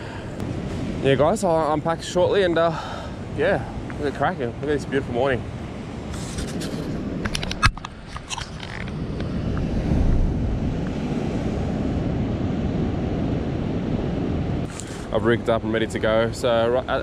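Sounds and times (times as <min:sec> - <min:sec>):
ocean surf breaking on rocks: 0:00.0 - 0:07.5
wind rumbling on microphone: 0:00.0 - 0:17.0.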